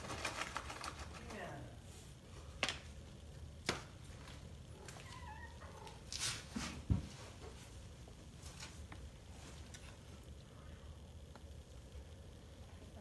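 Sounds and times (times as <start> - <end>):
cat meowing: 4.8 - 6.0.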